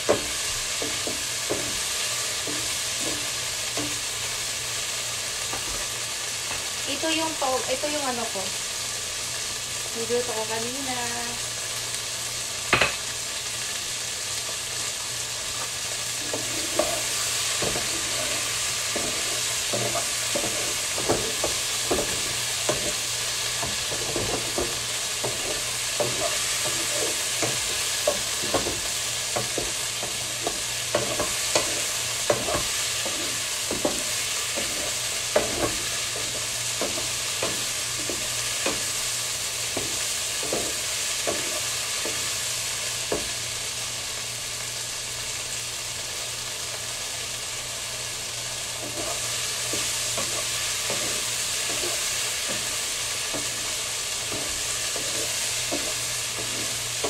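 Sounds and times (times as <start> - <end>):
food sizzling in a pan: 0.0 - 57.0
spatula scraping a pan: 0.1 - 4.1, 16.0 - 39.0, 39.6 - 42.3, 48.8 - 57.0.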